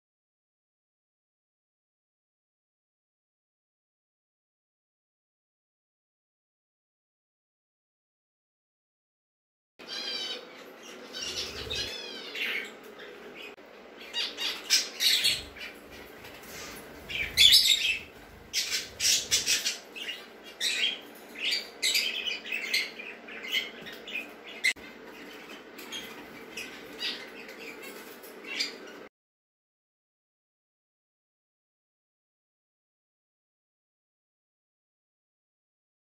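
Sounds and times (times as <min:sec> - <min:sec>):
budgerigars chirping and squawking: 0:09.8 - 0:29.1.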